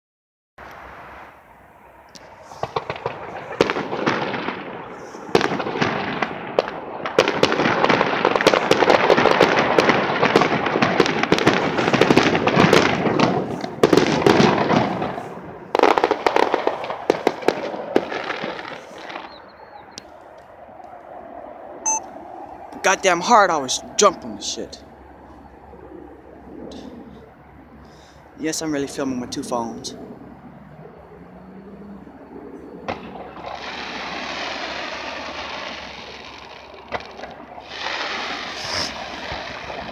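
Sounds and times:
fireworks bangs and crackling: 2.2s - 19.9s, 32.8s - 39.9s.

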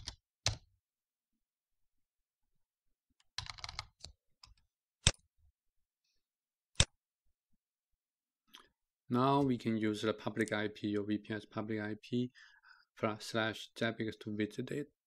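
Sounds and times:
keyboard typing: 3.2s - 5.2s.

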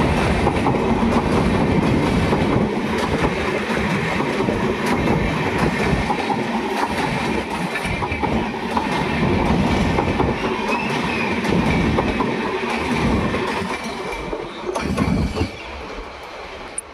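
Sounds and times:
train wheels clattering over rail joints: 0.0s - 15.9s.

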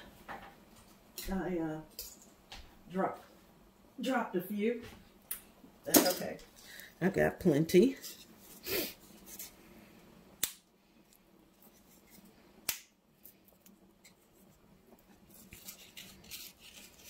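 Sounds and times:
dumpling strips snapping by hand: 10.4s - 10.7s, 12.6s - 13.0s.

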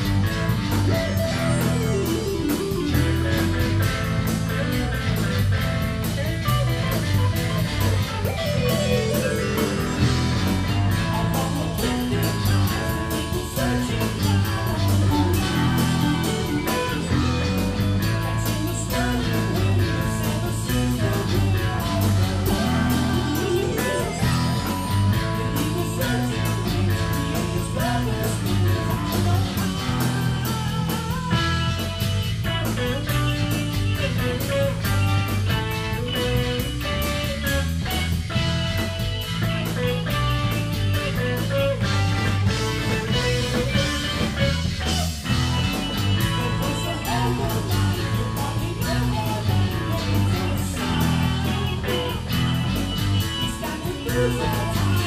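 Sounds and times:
drum kit beat: 0.0s - 55.0s
guitar: 0.0s - 55.0s
keyboards: 0.0s - 55.0s
man singing: 8.8s - 31.8s, 42.5s - 55.0s.

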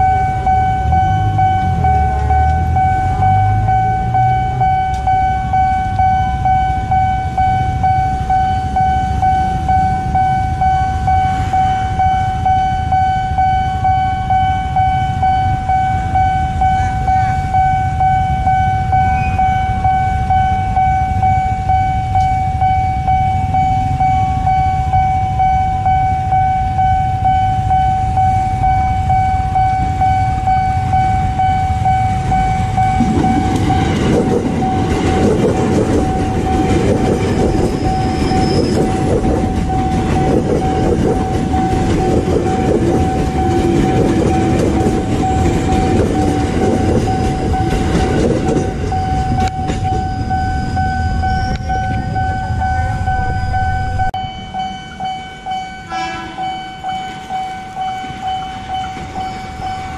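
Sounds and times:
level crossing alarm tone: 0.0s - 59.9s
motorcycles idling: 29.8s - 38.2s.

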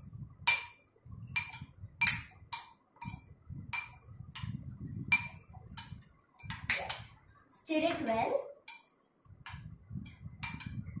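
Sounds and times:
fork clinking on glass bowl: 5.1s - 5.5s.

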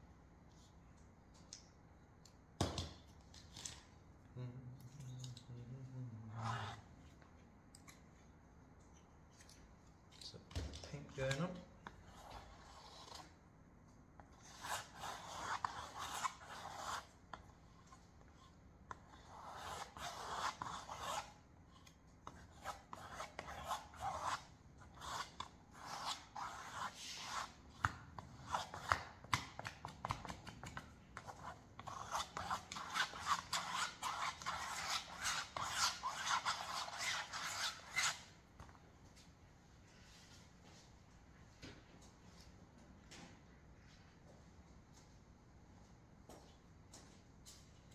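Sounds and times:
paintbrush scratching on canvas: 14.3s - 17.1s, 18.4s - 27.8s, 31.2s - 38.3s.

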